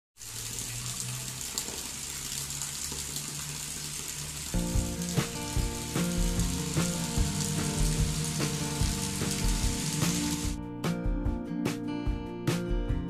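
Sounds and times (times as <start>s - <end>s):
light rain hissing: 0.2s - 10.6s
background music with beat: 4.6s - 13.0s.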